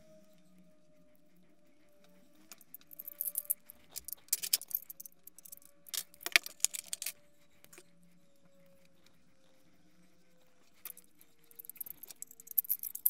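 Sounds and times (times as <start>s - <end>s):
metal fittings clinking: 2.5s - 7.1s, 11.6s - 13.0s.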